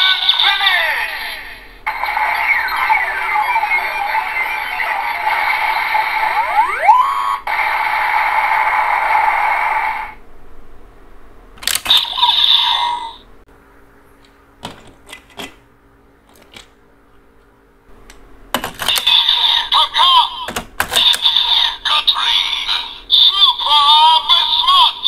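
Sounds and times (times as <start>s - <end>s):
buzzing electronic toy effect: 0.0s - 10.2s, 11.6s - 13.2s.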